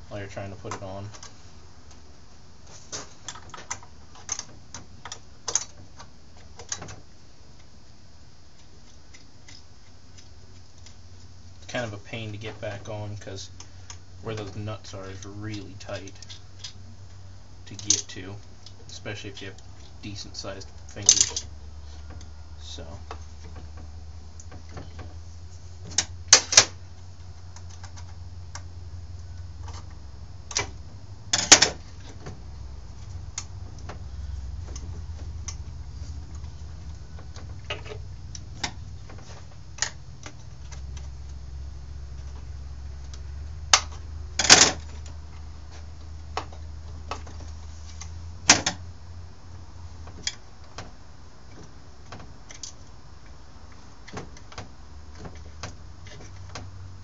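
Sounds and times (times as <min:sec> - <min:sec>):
steady low hum: 0:00.0 - 0:57.0
clicks of hand tools and metal parts: 0:17.7 - 0:19.0, 0:20.9 - 0:22.3.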